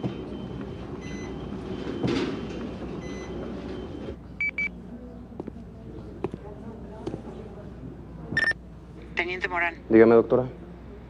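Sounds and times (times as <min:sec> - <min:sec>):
mobile phone beeps: 0:03.0 - 0:04.7, 0:08.4 - 0:08.6.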